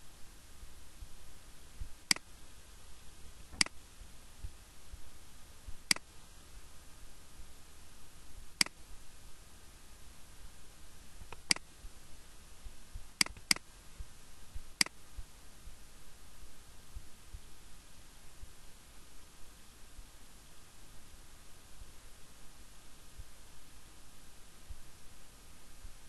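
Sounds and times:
faint steady hiss: 0.0 - 26.0
low hum: 0.0 - 26.0
mouse button clicking: 3.5 - 3.8, 13.2 - 13.6.

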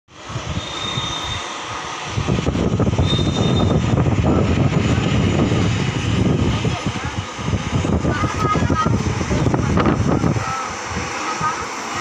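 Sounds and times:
high engine whine: 0.1 - 12.0
jet engines rumbling: 0.1 - 12.0.

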